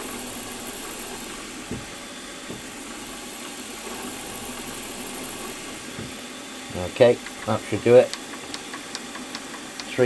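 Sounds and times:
milling machine spindle running: 0.0 - 10.0.

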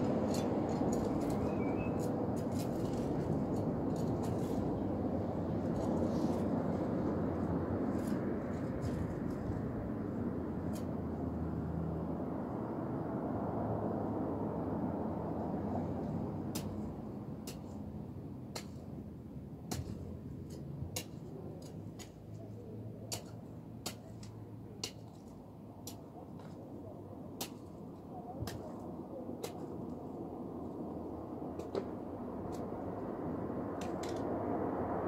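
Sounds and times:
sharp clicks in gravel: 0.0 - 4.8, 33.7 - 34.4.

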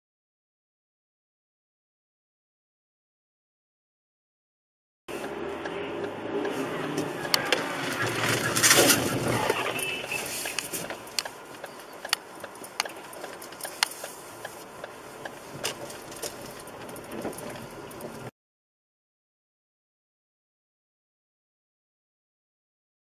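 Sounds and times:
dull rumble: 5.2 - 9.8
car knocking and rattling: 6.9 - 9.6, 15.2 - 18.3.

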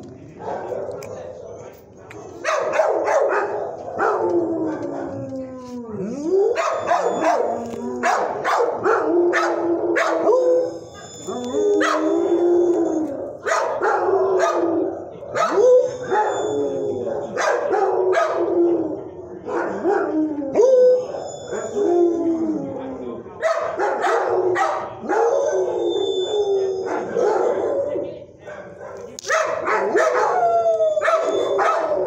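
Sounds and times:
dog barking: 0.4 - 1.6, 2.4 - 5.2, 6.5 - 11.2, 11.8 - 12.1, 13.4 - 14.7, 15.3 - 16.4, 17.1 - 18.5, 19.5 - 20.2, 23.4 - 25.9, 26.8 - 30.4, 31.0 - 32.0
dog howling: 2.6 - 23.2, 24.1 - 28.1, 29.6 - 32.0.

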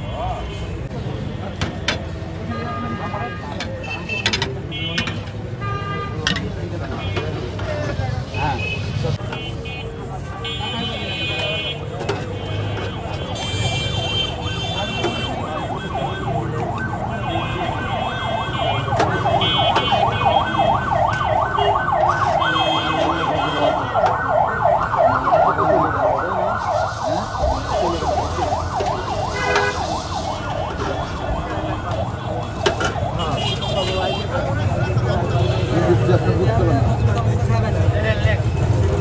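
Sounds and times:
street noise: 0.0 - 39.0
siren wailing: 13.9 - 34.0.

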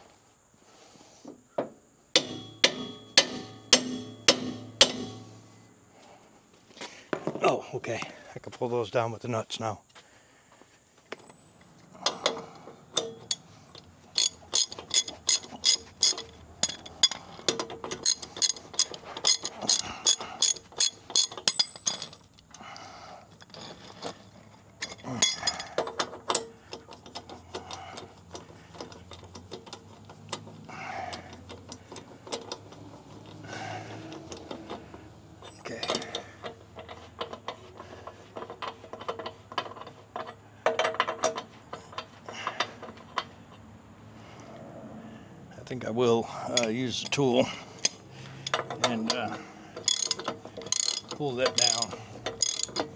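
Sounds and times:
metal clinks: 11.2 - 22.7, 23.3 - 29.8, 33.6 - 37.4, 46.4 - 52.9
ratchet wrench clicking: 13.0 - 22.5, 47.8 - 52.9.

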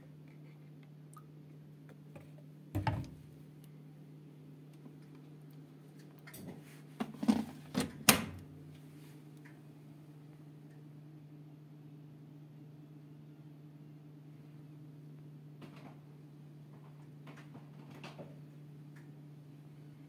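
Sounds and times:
washing machine humming: 0.0 - 20.0
washing machine knocks and clicks: 2.7 - 3.2.

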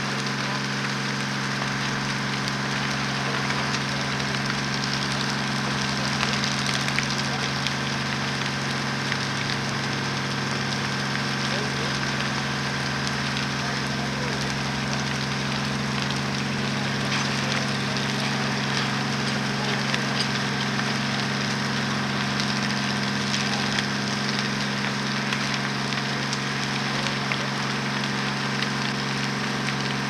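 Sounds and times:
fire crackling and snapping: 0.0 - 30.0
fire rushing: 0.0 - 30.0.

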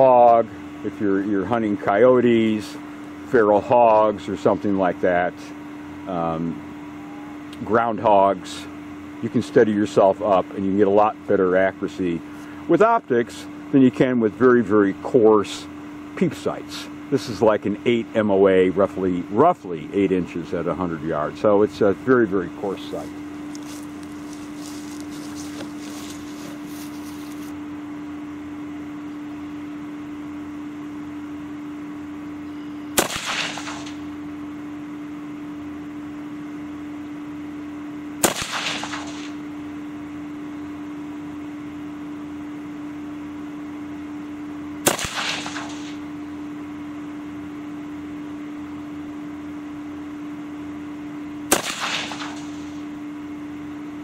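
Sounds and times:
steady hum: 0.0 - 54.0
rifle shots: 33.0 - 34.1, 38.2 - 39.4, 44.8 - 46.0, 51.5 - 52.8.

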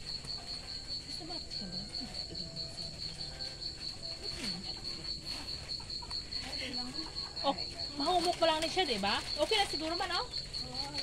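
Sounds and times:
cricket chirping: 0.0 - 11.0.

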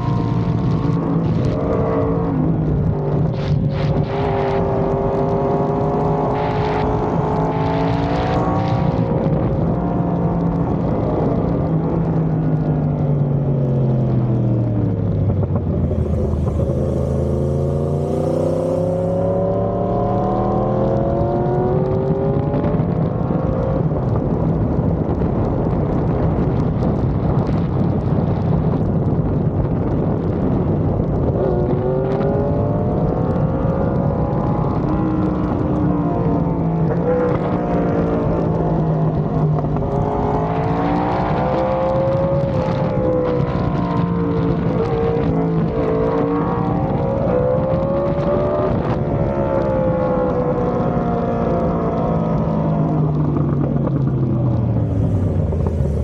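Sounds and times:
motorcycle engine while riding: 0.0 - 56.0.

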